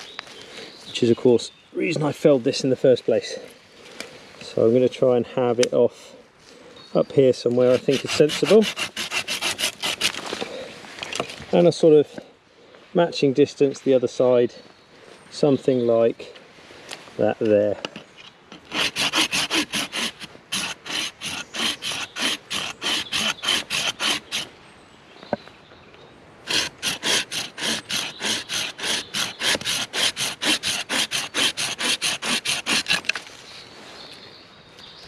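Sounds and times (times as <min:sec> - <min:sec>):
folding saw cutting branch: 0:07.6 - 0:10.5, 0:18.5 - 0:24.5, 0:26.5 - 0:33.3.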